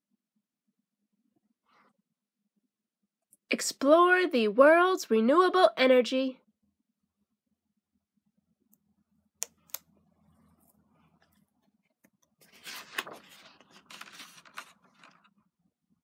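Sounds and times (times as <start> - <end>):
book clicks: 9.4 - 9.9
paper rustling and swishing: 12.4 - 15.3.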